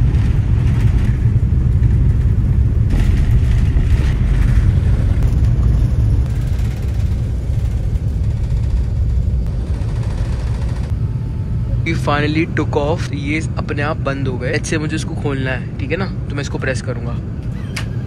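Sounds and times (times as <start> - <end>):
jet engines rumbling in cabin: 0.0 - 18.0.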